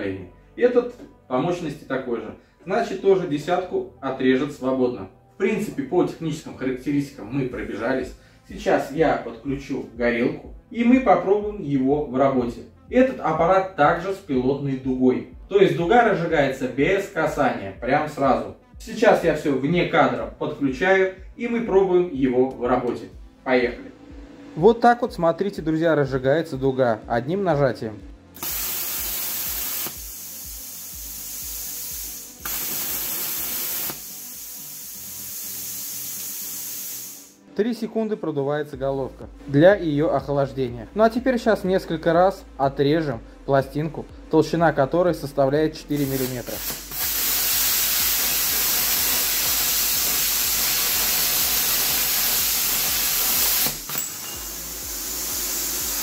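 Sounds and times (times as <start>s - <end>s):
compressed air hissing: 28.4s - 37.4s, 45.9s - 56.0s
plasma torch loud hiss: 28.4s - 37.4s, 45.9s - 56.0s.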